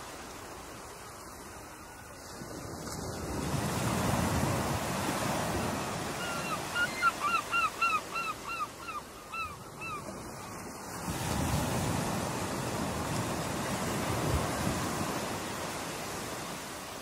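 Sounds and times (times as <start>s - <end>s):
ocean surf washing: 0.0s - 17.0s.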